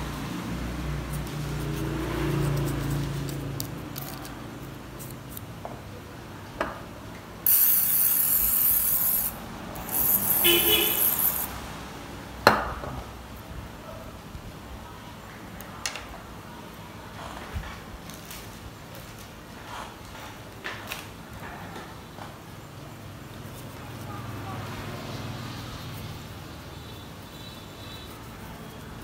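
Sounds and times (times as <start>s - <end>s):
soft scrubbing and handling: 0.9s - 5.6s
spray hissing: 7.5s - 11.5s.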